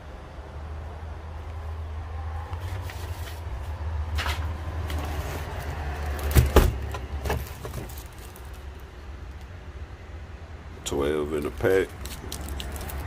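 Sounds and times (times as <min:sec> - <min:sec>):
handling knocks and rustles: 0:02.6 - 0:08.7.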